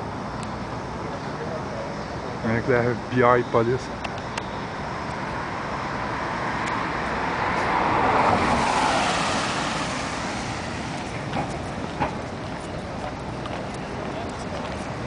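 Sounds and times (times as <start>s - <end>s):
steady traffic noise: 0.0s - 15.0s
car driving past: 6.2s - 12.3s.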